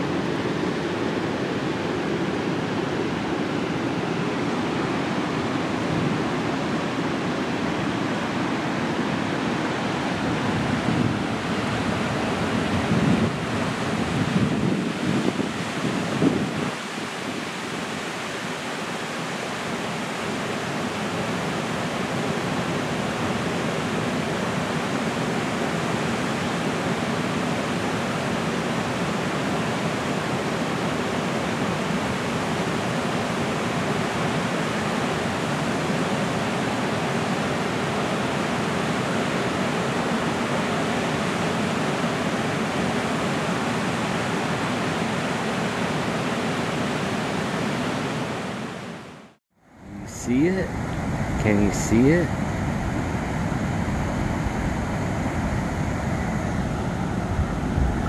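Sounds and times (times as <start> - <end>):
creek water rushing: 0.0 - 58.0.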